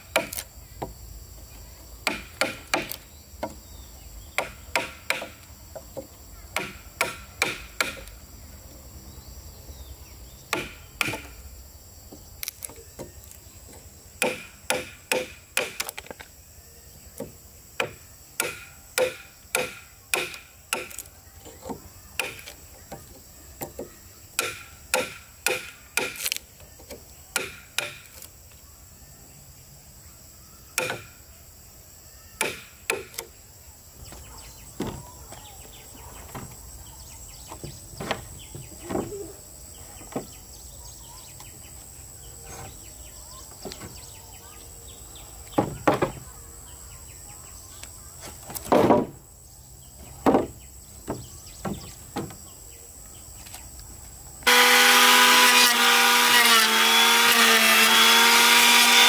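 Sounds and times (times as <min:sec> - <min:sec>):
hammer driving nails into timber: 0:06.6 - 0:08.1, 0:10.5 - 0:11.3, 0:14.2 - 0:16.0, 0:17.8 - 0:21.0, 0:24.4 - 0:26.4, 0:27.4 - 0:28.2, 0:30.8 - 0:31.1.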